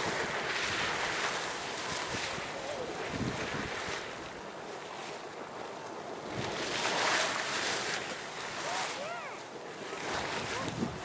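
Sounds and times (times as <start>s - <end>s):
wind buffeting microphone: 0.0s - 4.6s, 9.8s - 11.0s
water rushing and splashing: 0.0s - 11.0s.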